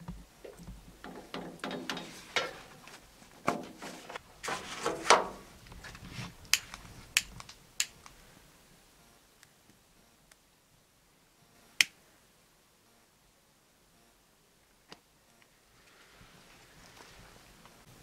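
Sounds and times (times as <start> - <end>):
sharp clicks: 6.4 - 8.2, 11.8 - 12.0.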